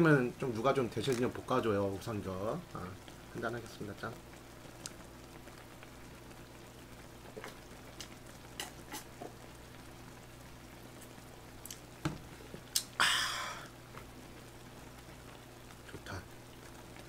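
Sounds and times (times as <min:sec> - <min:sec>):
faint simmer: 0:00.0 - 0:17.0
low electrical hum: 0:00.0 - 0:17.0
man gulping: 0:12.7 - 0:13.8.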